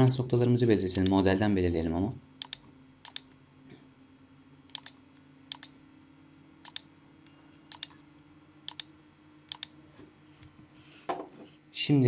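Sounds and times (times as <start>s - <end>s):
mouse button clicking: 1.0s - 1.2s, 2.4s - 3.2s, 4.8s - 5.7s, 7.7s - 7.9s.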